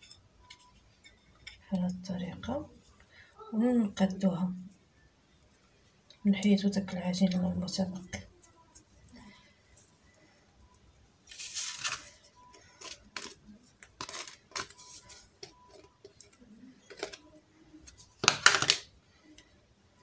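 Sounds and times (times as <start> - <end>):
paper rustling: 11.3 - 15.9.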